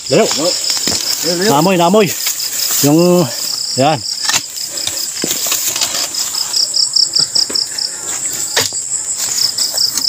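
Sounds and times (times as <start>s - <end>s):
cricket chirping: 0.0s - 10.0s
digging knocks and scrapes: 4.2s - 6.6s.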